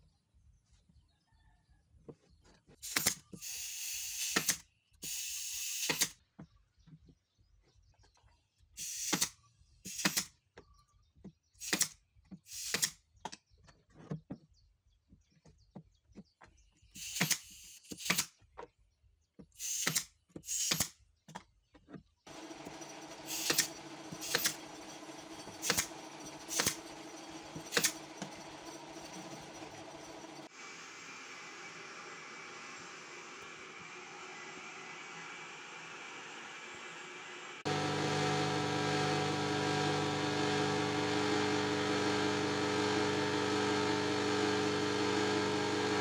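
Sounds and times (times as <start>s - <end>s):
pneumatic nailer shots: 2.8s - 6.2s, 9.9s - 10.3s, 11.6s - 13.0s, 17.0s - 18.3s, 19.6s - 21.0s, 23.3s - 24.6s, 25.6s - 25.9s, 26.5s - 26.9s, 27.6s - 28.0s.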